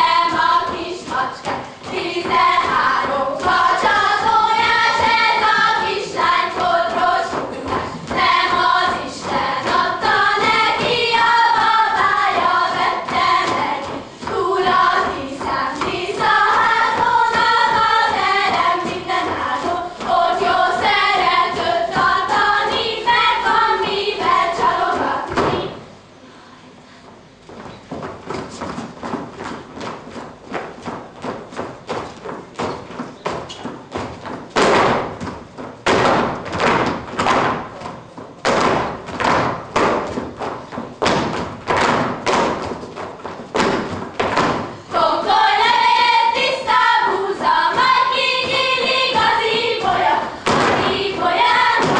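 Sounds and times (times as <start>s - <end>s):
shoes stamping on stage boards: 0.0s - 23.6s, 27.5s - 44.9s, 47.4s - 51.9s
girls singing folk song: 0.0s - 25.9s, 43.6s - 51.9s.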